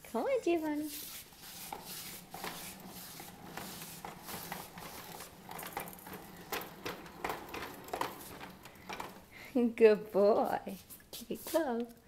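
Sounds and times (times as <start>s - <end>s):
baby walker rolling on tile floor: 0.4s - 10.3s
light clicks and rattles of wheels: 1.4s - 9.6s.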